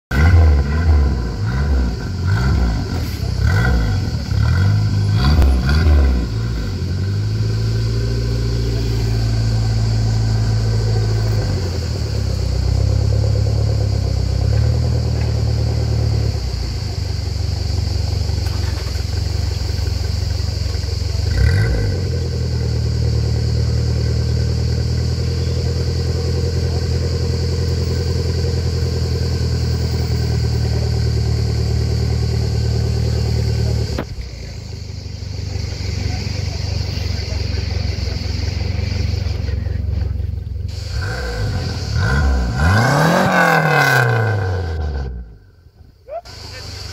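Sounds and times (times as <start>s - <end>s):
car engine revving and idling: 0.0s - 46.9s.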